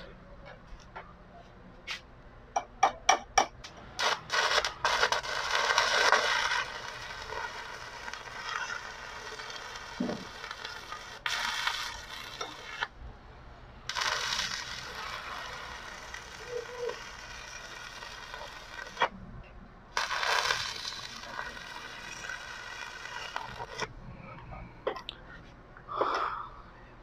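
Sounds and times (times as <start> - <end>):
welding arc crackling and sizzling: 3.6 - 13.0, 13.9 - 19.2, 19.9 - 23.9.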